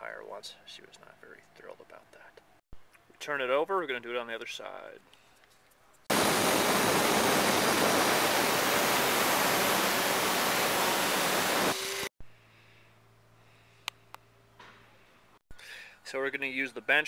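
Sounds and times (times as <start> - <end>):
angle grinder cutting metal: 6.7 - 12.1.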